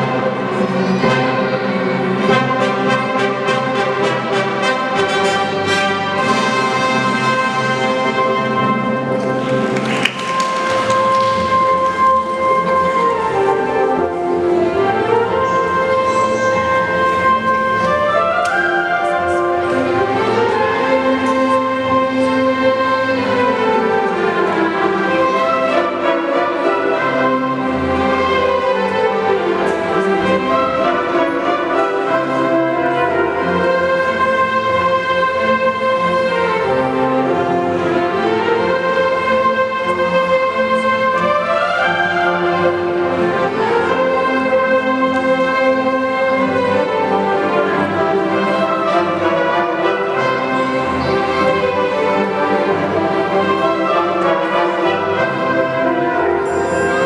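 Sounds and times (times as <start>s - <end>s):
orchestra playing a military march: 0.0s - 57.0s.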